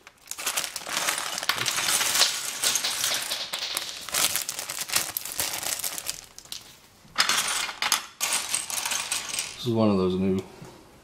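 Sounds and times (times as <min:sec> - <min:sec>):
plastic bag crinkling: 0:00.0 - 0:06.8.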